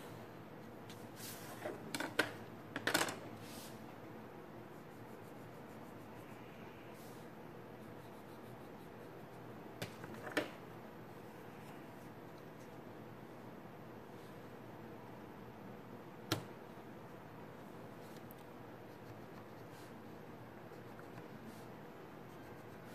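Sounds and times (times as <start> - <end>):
faint steady hiss: 0.0 - 22.9
soft pencil strokes: 4.7 - 9.6, 17.6 - 22.9.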